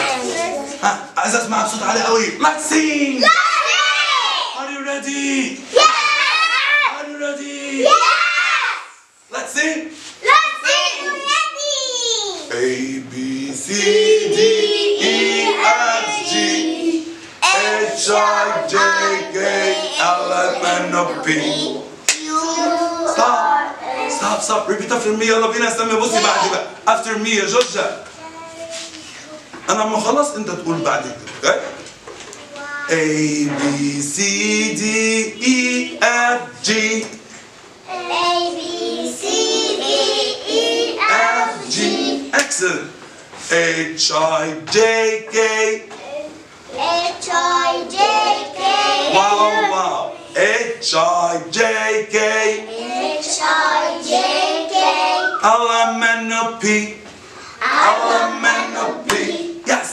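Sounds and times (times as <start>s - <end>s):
person singing children's song: 12.5s - 24.4s, 32.9s - 37.2s, 37.9s - 42.4s, 46.8s - 59.7s
man singing held notes: 32.9s - 37.3s.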